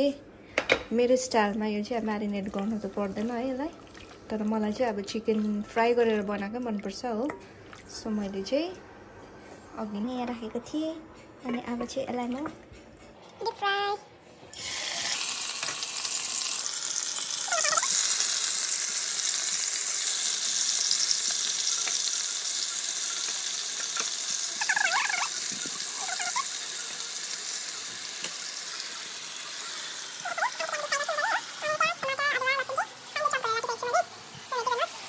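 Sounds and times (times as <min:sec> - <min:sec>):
chicken sizzling in hot oil: 0:14.5 - 0:35.0.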